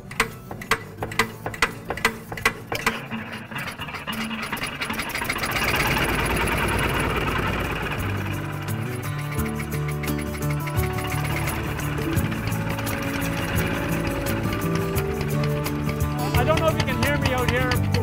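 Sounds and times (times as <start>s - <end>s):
stationary engine running: 0.0s - 18.0s.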